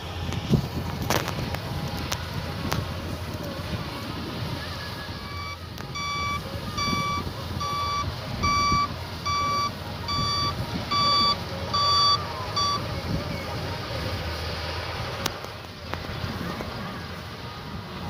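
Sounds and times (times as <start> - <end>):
high electronic warning beeps: 5.2 - 12.8.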